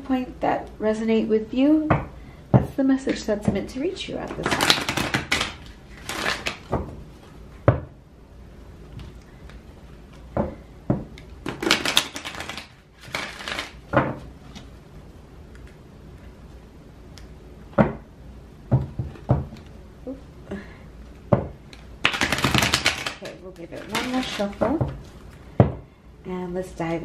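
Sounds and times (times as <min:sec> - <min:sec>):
cards riffle shuffling: 0:04.3 - 0:06.7, 0:11.4 - 0:13.8, 0:22.0 - 0:24.6.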